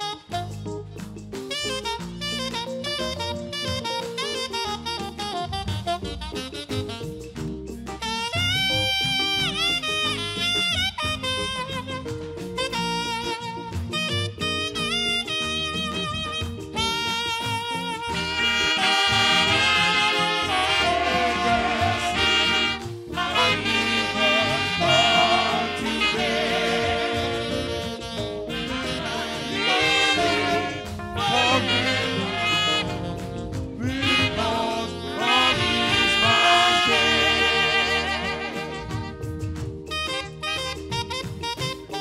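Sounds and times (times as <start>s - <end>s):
live band accompaniment: 0.0s - 42.0s
saxophones playing a melody: 0.0s - 42.0s.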